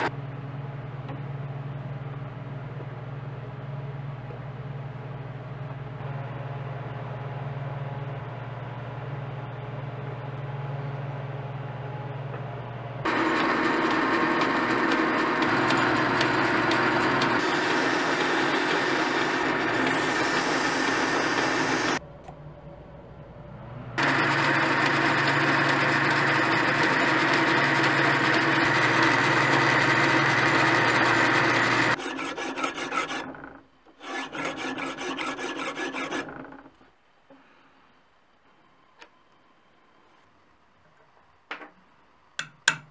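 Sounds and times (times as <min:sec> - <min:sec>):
metal lathe humming: 0:13.1 - 0:22.0, 0:24.0 - 0:36.7
hand tool rubbing spinning rod: 0:16.6 - 0:22.0, 0:29.9 - 0:36.6.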